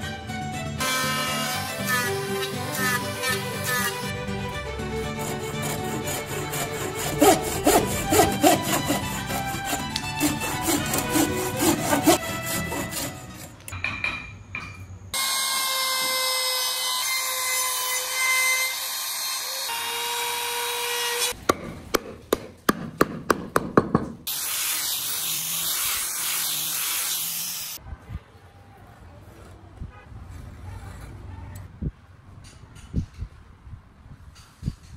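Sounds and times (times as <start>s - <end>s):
rushing power tool noise: 0.8s - 13.4s, 15.2s - 21.4s, 24.3s - 27.8s
hand saw cutting wood: 0.8s - 13.6s
sharp knocks: 21.4s - 24.3s.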